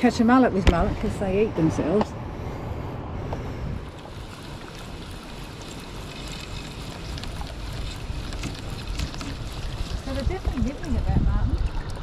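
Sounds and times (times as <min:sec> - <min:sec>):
wind rumbling on microphone: 0:00.0 - 0:12.0
water hissing in shallows: 0:03.8 - 0:11.2.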